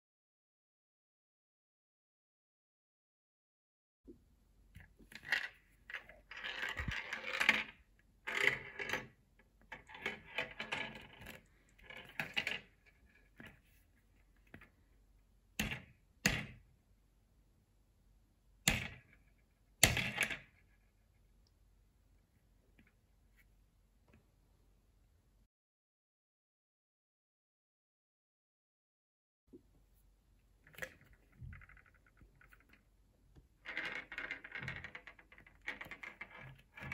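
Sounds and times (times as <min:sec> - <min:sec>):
ball rattling through plastic maze: 0:04.8 - 0:13.8, 0:30.6 - 0:32.9, 0:33.6 - 0:36.9.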